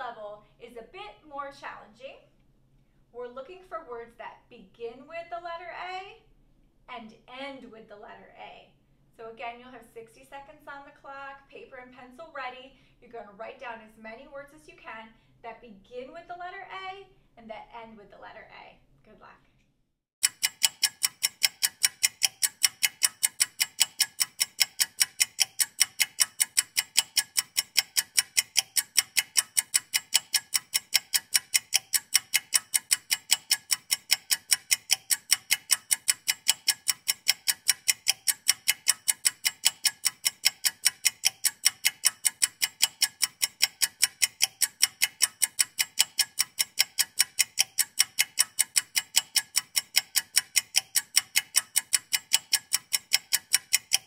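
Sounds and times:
clock ticking: 20.2s - 54.0s.

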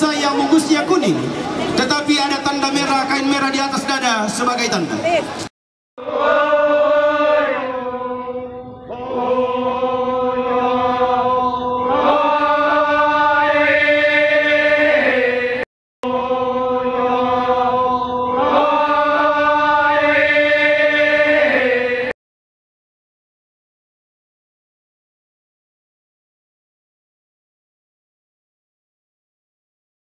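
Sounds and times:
group chanting held notes: 6.0s - 22.2s.

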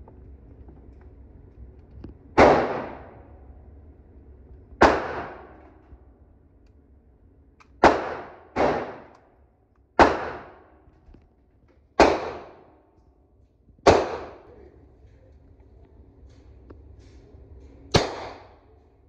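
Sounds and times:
echoing gunshots: 2.4s - 3.3s, 4.8s - 5.7s, 7.8s - 9.2s, 10.0s - 10.8s, 12.0s - 12.7s, 13.8s - 14.5s, 17.9s - 18.7s.

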